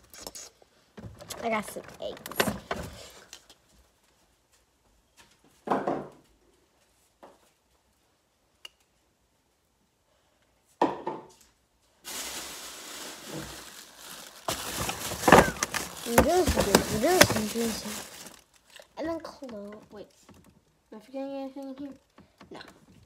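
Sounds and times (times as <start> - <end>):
plastic bag rustling: 12.0 - 18.9
knocks and thuds: 14.5 - 18.0.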